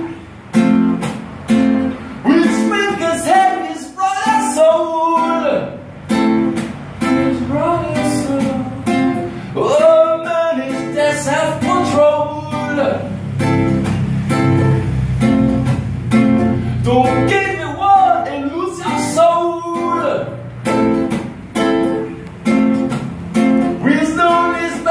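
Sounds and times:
classical guitar strumming: 0.0 - 24.9
man singing: 2.2 - 5.8, 7.2 - 13.2, 16.8 - 20.4, 23.8 - 24.9.

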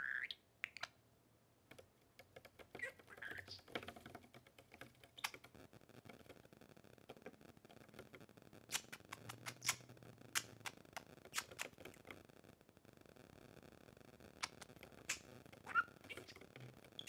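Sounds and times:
bird claws tapping on wood: 1.7 - 6.4.

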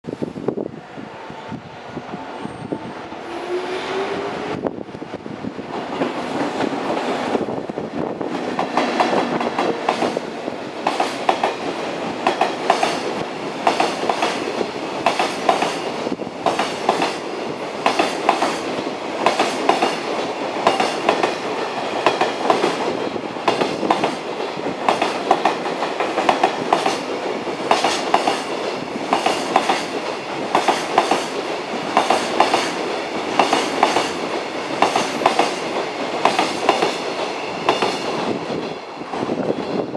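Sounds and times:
train rolling rumble: 0.0 - 39.9
train wheels clattering over rail joints: 8.2 - 39.9.

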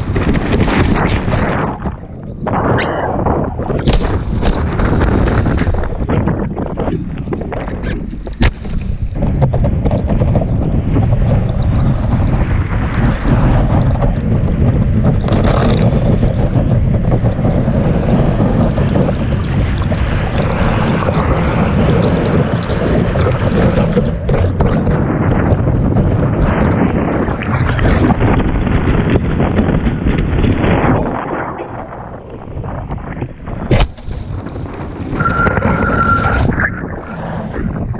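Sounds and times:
wind buffeting microphone: 0.0 - 37.9
rushing splashing water: 8.5 - 30.7.

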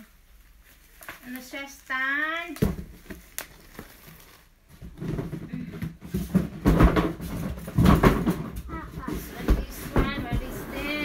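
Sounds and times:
cardboard and plastic rustling: 0.0 - 11.0
dull thumps: 4.8 - 11.0.

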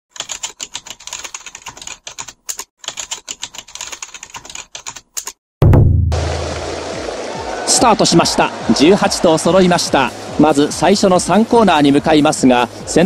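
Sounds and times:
rapid keyboard typing clicks: 0.1 - 5.4
loud low hum: 5.6 - 7.2.

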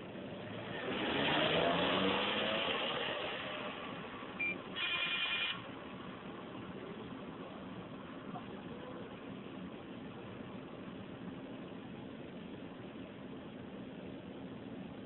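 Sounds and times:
vehicle passing: 0.2 - 4.4
electronic ringing tone: 4.4 - 5.6
short high beep: 4.4 - 5.6.

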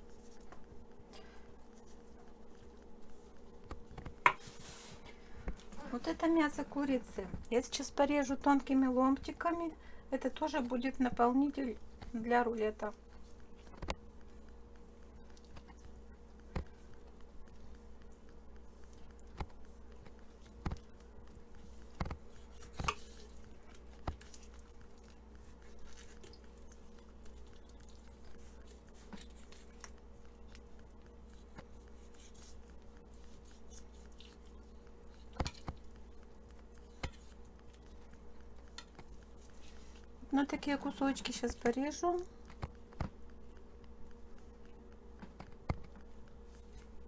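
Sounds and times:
steady low hum: 0.0 - 47.0
sharp taps and clicks: 41.5 - 46.4.

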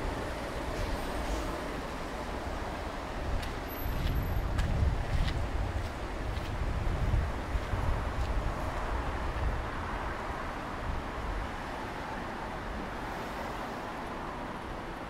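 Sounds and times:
road traffic noise: 0.0 - 15.0.

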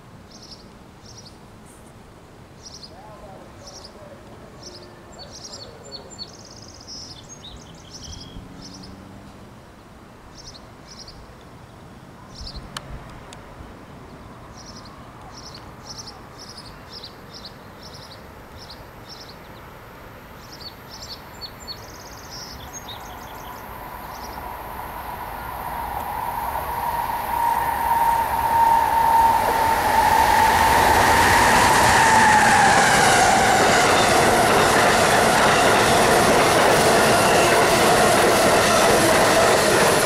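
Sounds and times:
outdoor background noise: 0.0 - 40.0
birds chirping: 2.6 - 9.1, 20.4 - 26.4
approaching train rushing: 3.0 - 9.4, 21.3 - 40.0.

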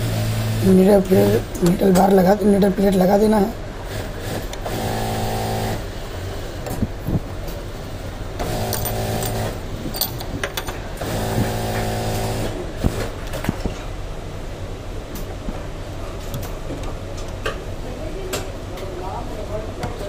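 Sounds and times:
sewing machine motor humming: 3.9 - 5.8, 11.0 - 13.1.

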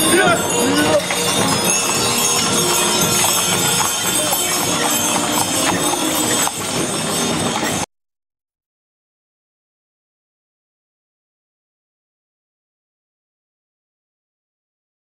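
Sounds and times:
hooves clip-clopping on asphalt: 0.0 - 7.8
harness chains jingling: 0.0 - 7.9.

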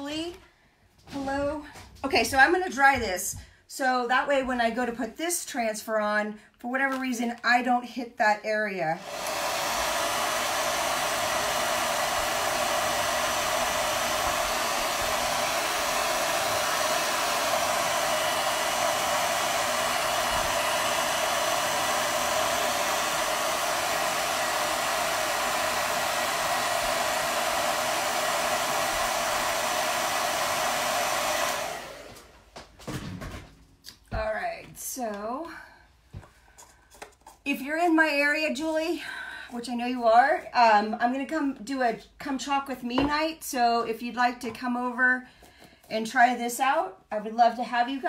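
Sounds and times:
hair dryer blowing: 8.9 - 32.7, 37.6 - 45.0.

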